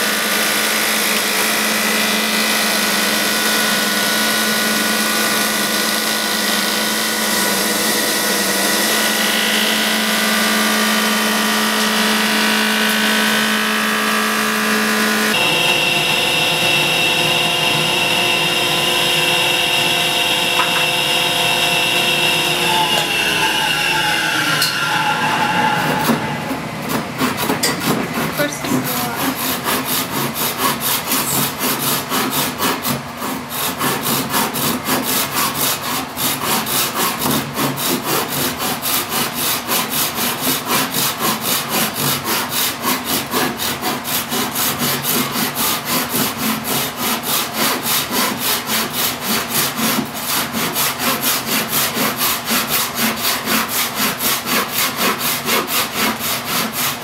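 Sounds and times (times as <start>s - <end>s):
hand saw cutting wood: 0.0s - 57.0s
power tool motor spinning down: 6.6s - 26.7s.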